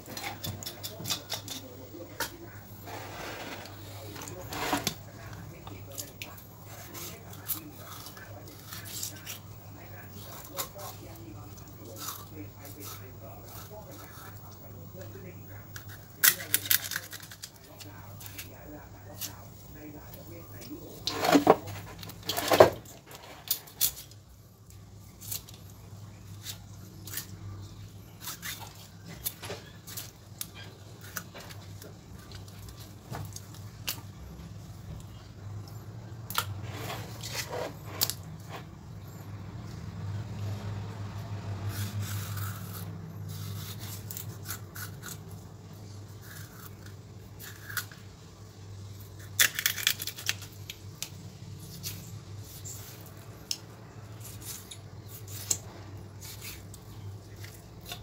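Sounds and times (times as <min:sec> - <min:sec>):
low steady hum: 0:00.0 - 0:58.0
knife scraping on board: 0:02.2 - 0:05.1, 0:36.6 - 0:38.7.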